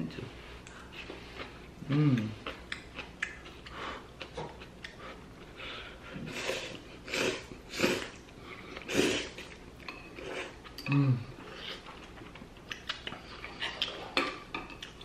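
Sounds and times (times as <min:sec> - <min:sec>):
person humming: 0:01.8 - 0:02.4, 0:10.8 - 0:11.4.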